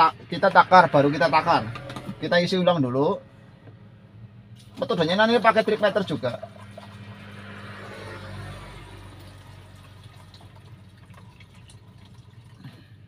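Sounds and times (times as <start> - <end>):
fuel pouring trickle: 4.6 - 13.0.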